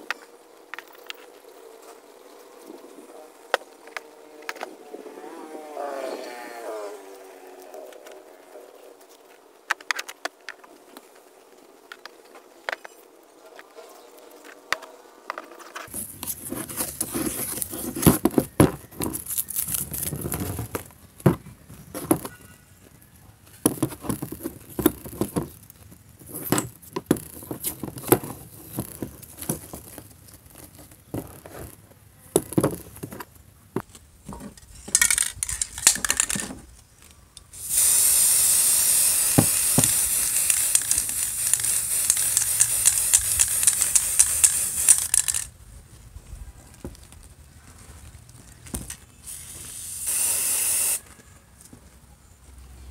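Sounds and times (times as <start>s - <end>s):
metal and wooden parts clicking: 32.4s - 37.5s, 39.4s - 45.5s
aerosol spray can hissing: 37.6s - 45.4s, 49.3s - 51.0s.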